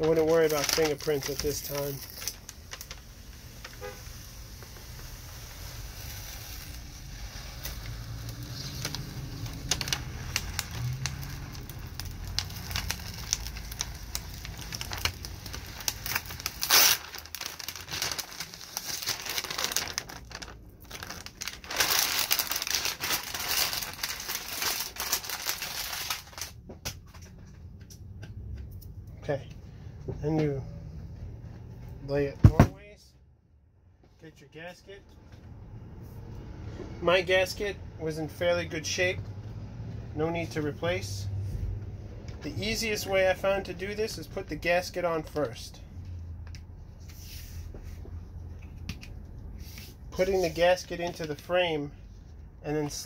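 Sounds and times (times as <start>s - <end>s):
plastic film crinkling: 0.0s - 27.2s, 49.7s - 51.6s.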